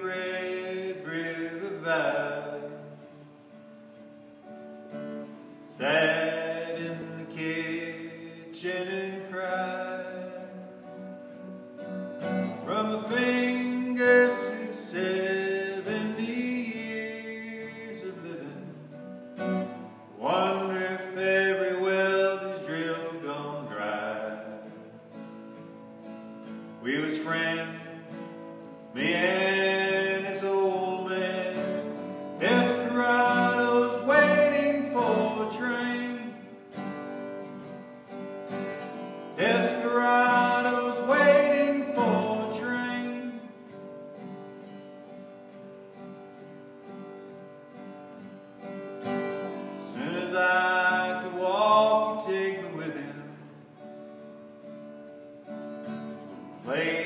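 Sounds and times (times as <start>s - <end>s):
man singing: 0.0s - 3.2s, 5.7s - 10.9s, 12.3s - 19.1s, 20.2s - 25.0s, 26.8s - 36.9s, 38.6s - 43.7s, 49.2s - 53.7s, 56.6s - 57.0s
acoustic guitar strummed and picked: 0.0s - 57.0s.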